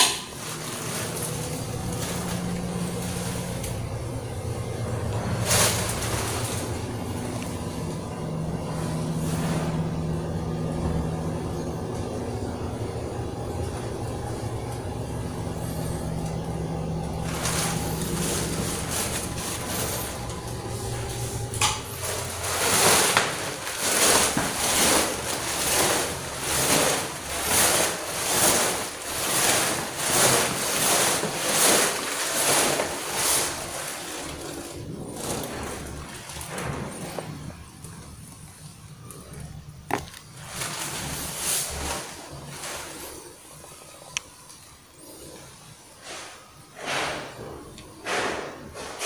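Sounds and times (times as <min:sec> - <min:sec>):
steady low hum: 0:00.0 - 0:49.0
footsteps on tiled stairs: 0:17.0 - 0:34.7.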